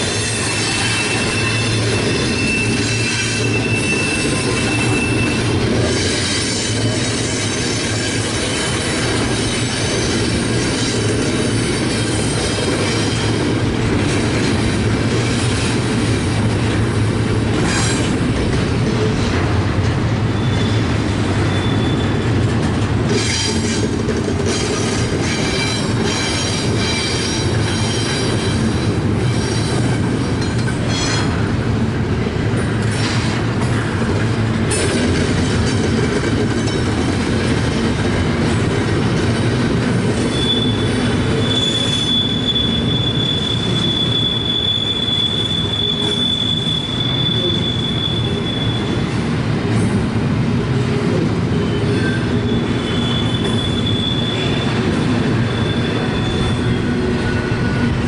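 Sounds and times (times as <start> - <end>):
high wheel squeal: 0.0 - 8.8, 20.3 - 22.3, 40.2 - 49.0, 51.5 - 58.0
train wheels rumbling on rail: 0.0 - 58.0.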